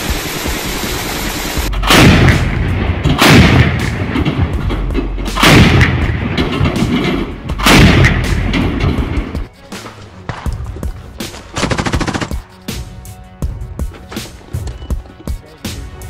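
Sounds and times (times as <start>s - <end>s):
autocannon firing with echo: 0.0s - 4.7s, 5.3s - 9.3s.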